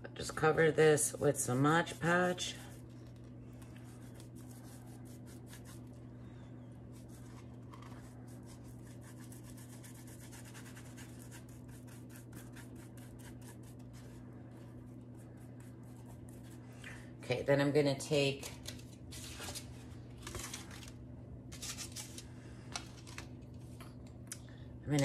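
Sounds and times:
steady low hum: 0.0 - 25.0
paintbrush scratchy strokes: 3.8 - 6.0, 6.9 - 16.8.

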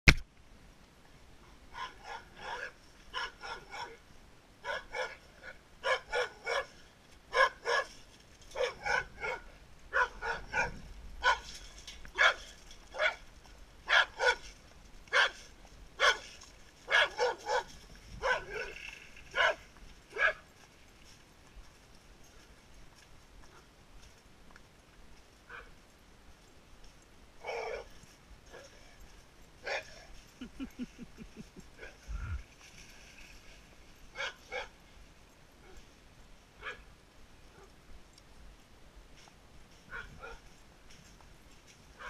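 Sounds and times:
dog barking: 1.7 - 4.0, 4.6 - 7.9, 8.6 - 11.5, 12.2 - 13.2, 13.9 - 14.5, 15.1 - 15.4, 16.0 - 16.3, 16.9 - 18.8, 19.4 - 19.6, 20.2 - 20.4, 25.5 - 25.7, 34.2 - 34.7, 36.6 - 36.8.

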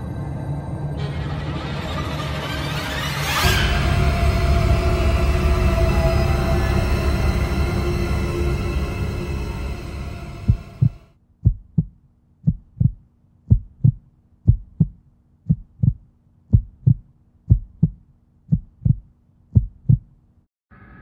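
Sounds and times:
eerie soundtrack music: 0.0 - 11.1
heartbeat thumps: 10.3 - 20.1.

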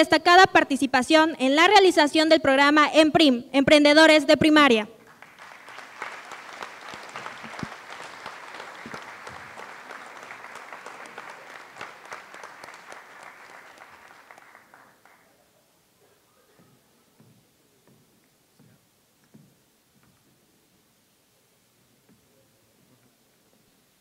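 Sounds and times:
audience applauding: 5.0 - 15.7.

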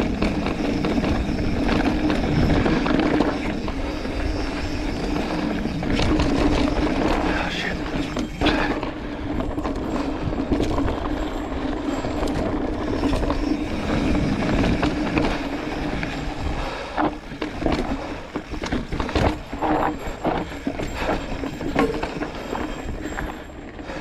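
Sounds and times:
tyres crunching over dirt: 0.0 - 23.8
bike knocking and rattling: 0.0 - 24.0
bike mechanical buzz: 0.0 - 24.0
rushing wind: 0.0 - 24.0.

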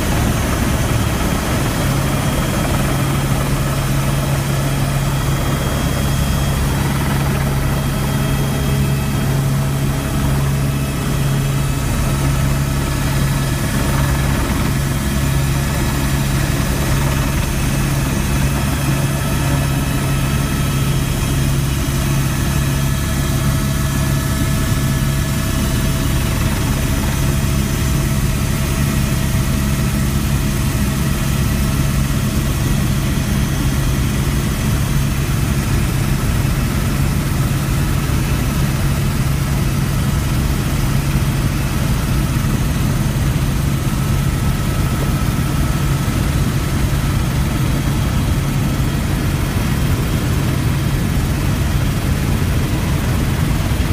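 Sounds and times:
helicopter drone from inside cabin: 0.0 - 53.9.

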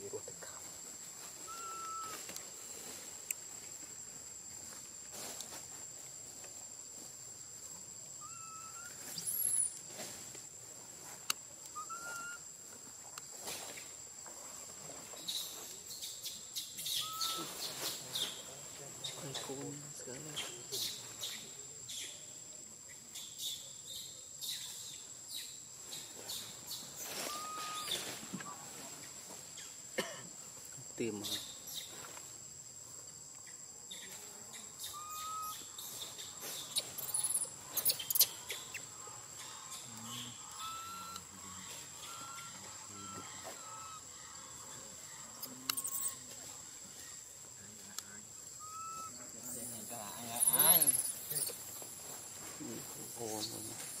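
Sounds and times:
insects buzzing: 0.0 - 54.0
bird whistle: 1.5 - 2.2, 8.2 - 9.7, 11.7 - 12.4, 16.8 - 17.5, 27.2 - 28.0, 34.8 - 35.7, 48.6 - 49.2
bird-like chirp: 15.2 - 18.4, 33.5 - 41.3, 45.4 - 46.3.

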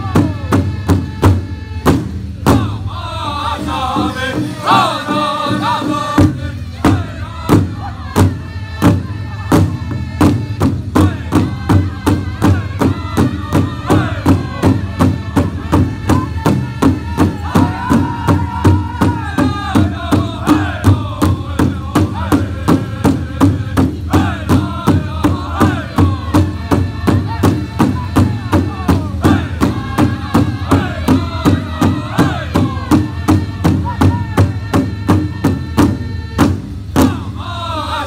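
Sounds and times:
large drum beating: 0.0 - 37.4
group chanting: 2.5 - 36.0, 37.0 - 38.0.

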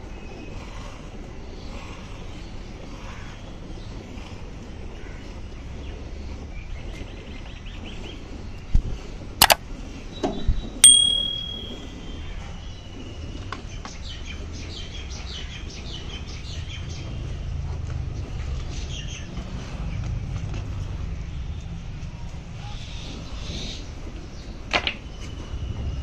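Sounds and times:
metallic ding: 10.8 - 11.9.

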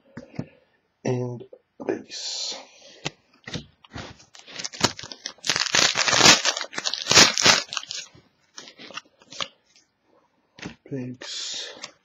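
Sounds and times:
card pack wrapper crinkling: 4.3 - 9.5.

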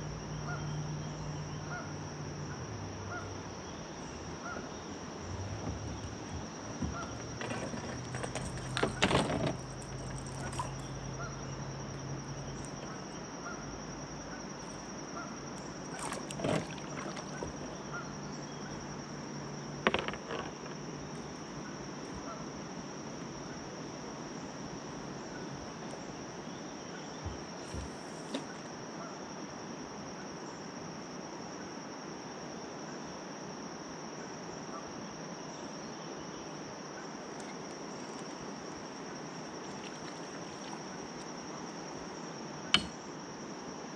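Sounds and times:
insects droning: 0.0 - 43.9
brief knocks: 42.8 - 43.0.

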